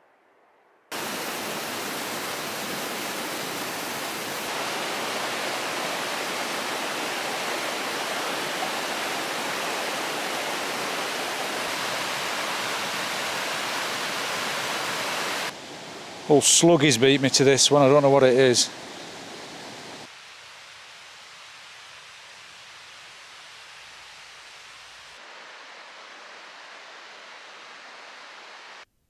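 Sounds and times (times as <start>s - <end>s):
fast-flowing water rushing: 0.9s - 20.1s.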